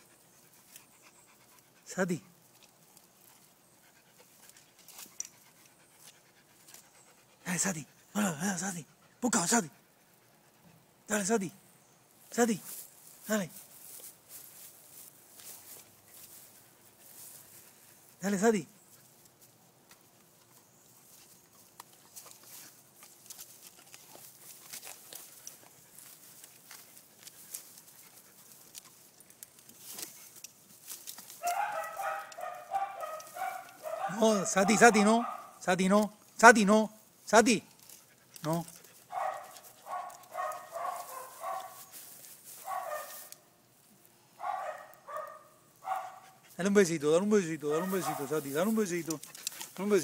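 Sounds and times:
animals rustling on dry leaves: 0.0 - 7.1, 12.1 - 18.2, 18.8 - 35.6, 37.0 - 50.0
scratchy rustling: 20.7 - 34.1, 38.7 - 43.4, 47.7 - 50.0.

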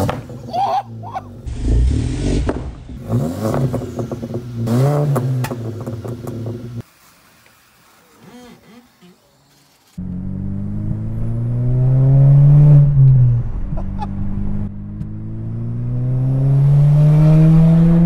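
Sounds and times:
car engine accelerating: 1.3 - 6.8, 10.0 - 18.0.

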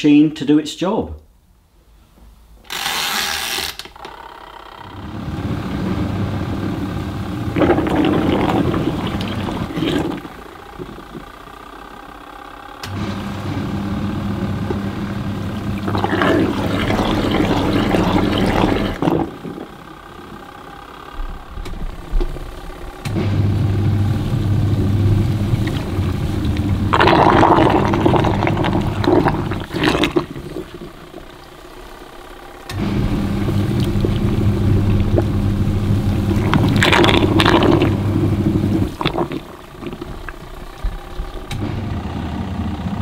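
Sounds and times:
washing machine motor humming: 4.0 - 43.0
water sloshing: 7.5 - 11.4, 14.4 - 23.1, 24.2 - 41.6.

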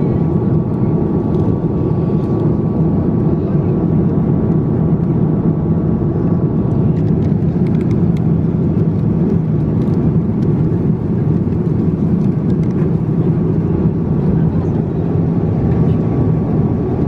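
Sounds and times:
airliner cabin drone: 0.0 - 17.0.

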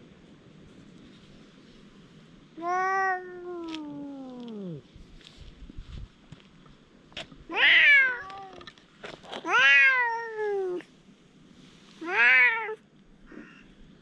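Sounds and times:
cat meowing: 2.6 - 4.8, 7.5 - 8.6, 9.4 - 10.8, 12.0 - 12.8.

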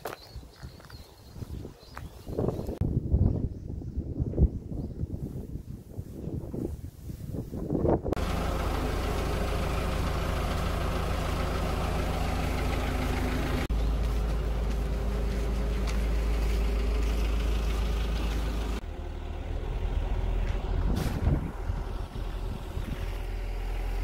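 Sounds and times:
truck engine idling: 8.2 - 24.0.

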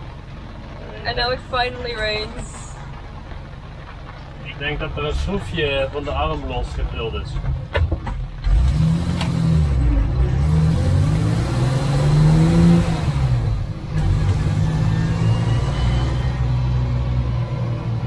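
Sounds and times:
truck engine from inside cab: 0.0 - 18.0.

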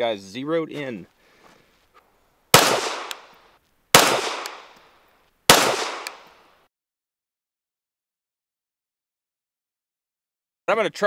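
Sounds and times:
pistol shots with echo: 2.5 - 3.3, 4.0 - 4.8, 5.5 - 6.4.

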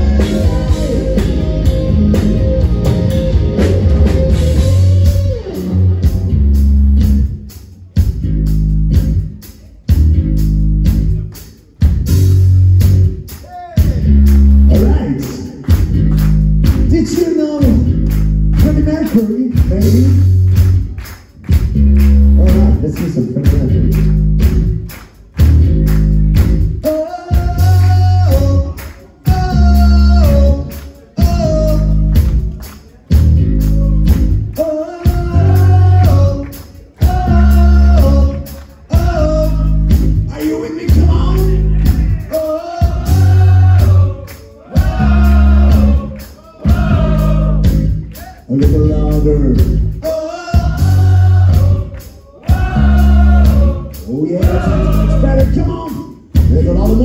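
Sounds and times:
live hard rock band: 0.0 - 20.8, 23.4 - 57.0
lead vocal singing: 26.8 - 32.2, 33.8 - 57.0.

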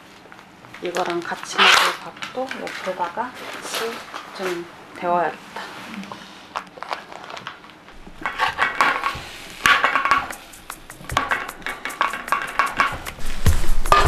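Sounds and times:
cookware clinking and clattering: 8.1 - 10.4, 11.1 - 13.1.

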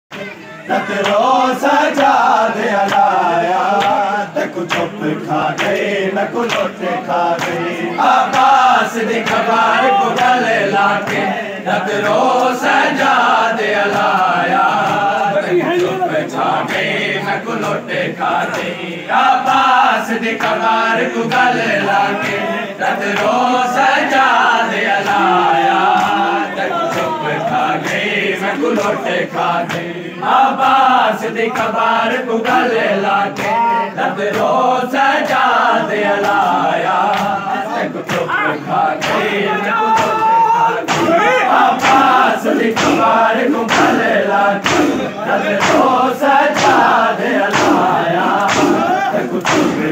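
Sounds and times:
men chanting together: 0.2 - 49.9
hands slapping chests: 39.0 - 49.9.

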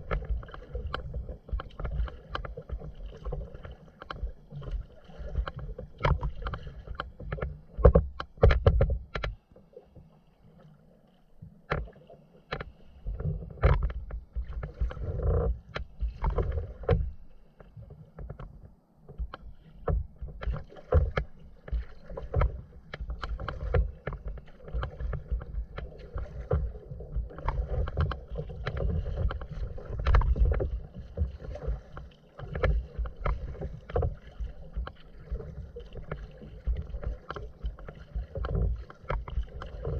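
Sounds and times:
paddle splashes: 0.0 - 39.9
waves slapping hull: 0.0 - 39.9.

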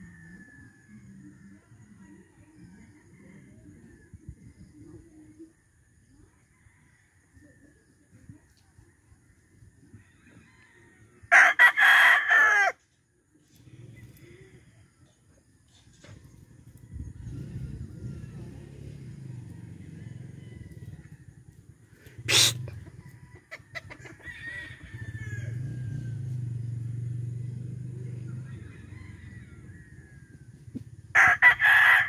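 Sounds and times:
rooster crowing: 10.3 - 12.8, 22.3 - 27.0, 28.2 - 30.4, 31.1 - 32.0.

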